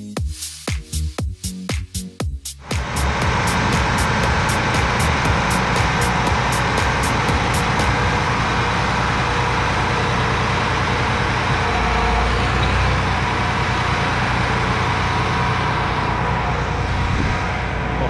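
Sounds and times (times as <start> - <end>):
tractor diesel engine running: 2.6 - 18.0.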